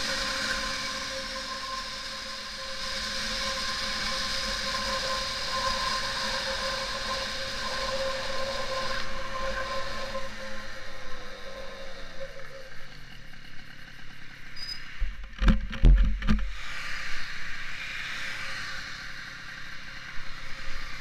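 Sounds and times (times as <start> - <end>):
scooter engine accelerating: 0.0 - 14.6.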